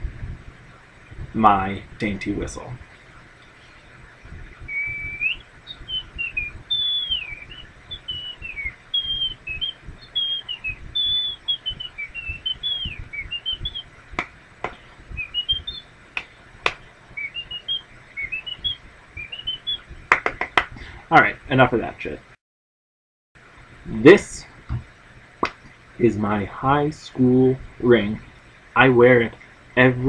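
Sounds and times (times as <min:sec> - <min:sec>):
man whistling a high tune: 0:04.7 - 0:13.8.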